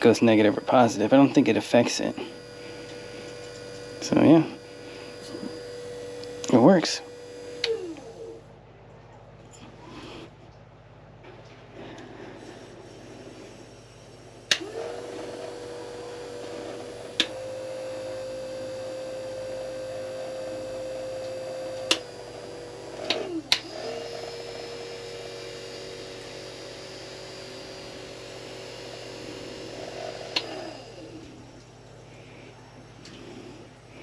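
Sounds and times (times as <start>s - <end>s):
electric motor whine: 0.0s - 8.5s, 11.8s - 34.0s
speed control clicks: 5.2s - 6.6s, 7.5s - 8.1s, 14.5s - 14.7s, 17.1s - 17.4s, 21.2s - 22.1s, 23.0s - 23.8s, 30.3s - 30.6s.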